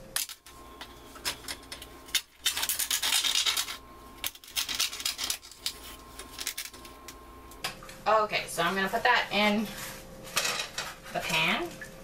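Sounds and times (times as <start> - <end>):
knife slitting plastic film: 2.1 - 6.8.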